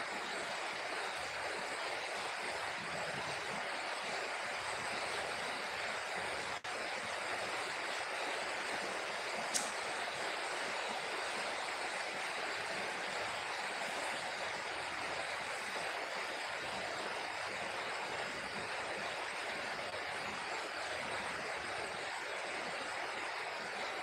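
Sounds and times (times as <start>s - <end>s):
short click: 9.5s - 9.8s.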